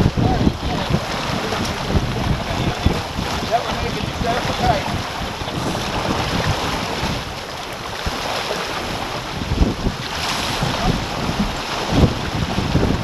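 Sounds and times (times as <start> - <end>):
water rushing along hull: 0.0 - 13.0
wind buffeting microphone: 0.0 - 13.0.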